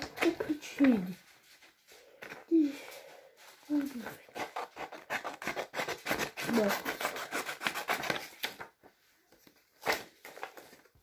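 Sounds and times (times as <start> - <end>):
paper rustling: 0.0 - 11.0
scissors snipping paper: 3.7 - 8.7.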